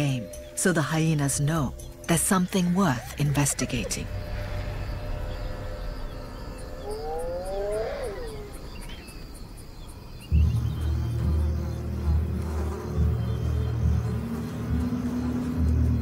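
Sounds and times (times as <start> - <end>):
insects chirping: 0.0 - 16.0
low rumbling drone: 0.0 - 16.0
hyena whoop: 6.8 - 8.7.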